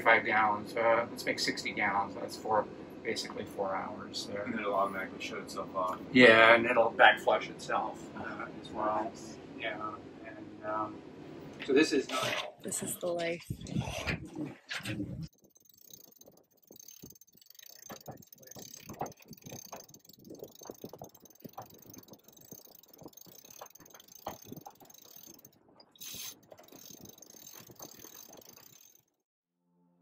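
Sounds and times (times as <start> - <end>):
sailboat rigging clicks and creaks: 14.2 - 29.1.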